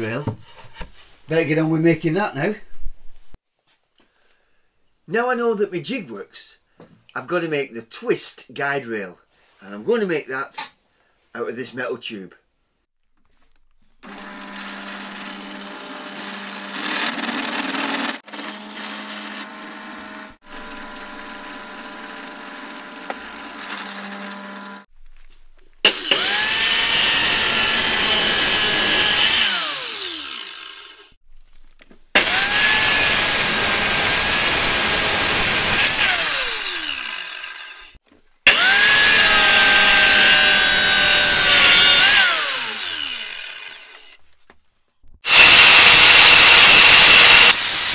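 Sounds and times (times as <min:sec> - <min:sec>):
cut-off saw cutting metal: 0:25.8 - 0:31.2, 0:32.2 - 0:44.2, 0:45.2 - 0:47.9
saw motor spinning down: 0:25.9 - 0:31.2, 0:32.2 - 0:44.2, 0:45.3 - 0:47.9
drill press drilling metal: 0:32.2 - 0:37.7, 0:38.5 - 0:43.8, 0:45.3 - 0:47.9.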